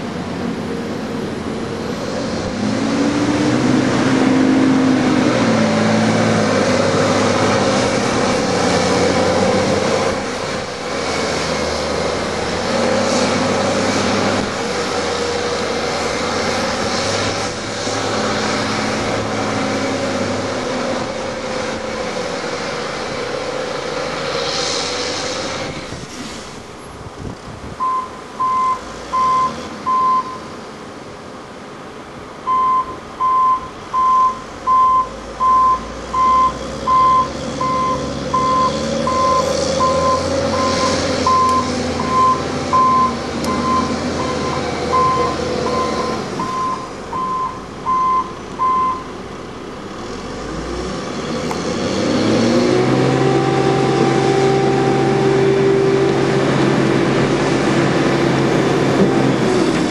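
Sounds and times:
diesel engine revving: 0.0 - 27.2, 27.8 - 59.9
reversing alarm beeping: 27.8 - 30.5, 32.5 - 49.1, 52.5 - 59.4.

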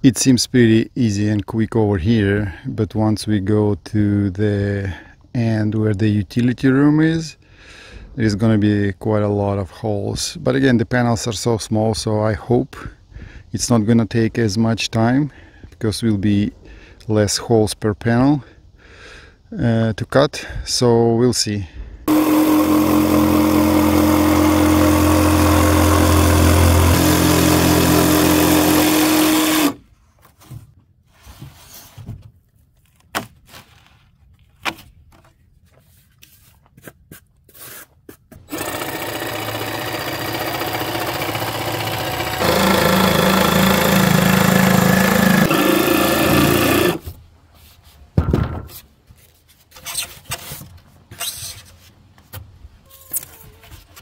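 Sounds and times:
jigsaw cutting foam: 22.1 - 29.8, 38.4 - 47.1.

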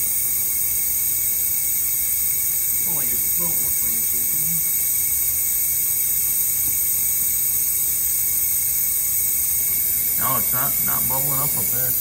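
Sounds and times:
compressed air hissing: 0.0 - 12.0.

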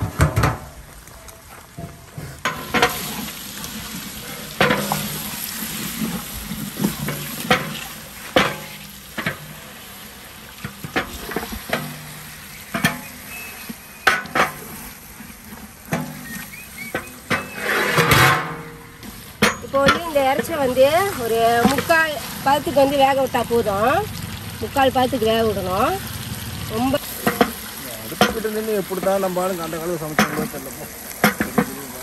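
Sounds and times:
wooden spatula scraping a pot: 1.4 - 9.6, 10.6 - 22.8
food sizzling in a metal pot: 1.7 - 32.0
metal lid rattling: 17.0 - 20.8.

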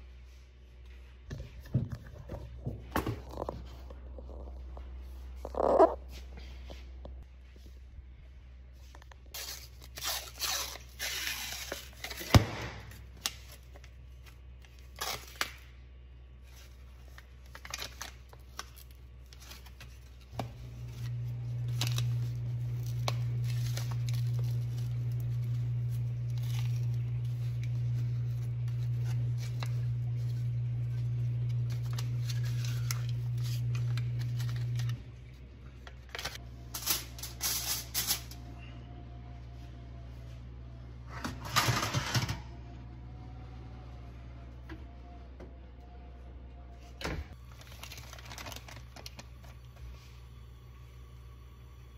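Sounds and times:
aluminium foil crinkling and tearing: 9.3 - 12.4, 13.0 - 15.7, 16.4 - 35.0, 35.8 - 38.4, 47.3 - 49.7
appliance motor hum: 19.0 - 37.4, 38.3 - 51.9.

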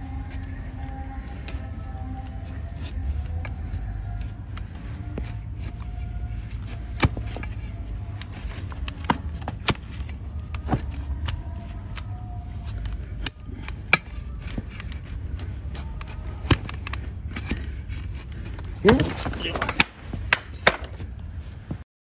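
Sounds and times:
steady low rumble: 0.0 - 21.8
hoof blade cracking hoof: 12.7 - 21.0.

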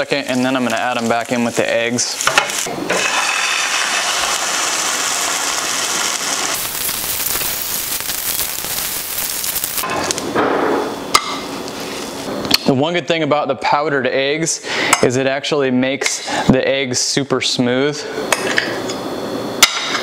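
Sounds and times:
vegetables sizzling in a frying pan: 0.0 - 9.8.

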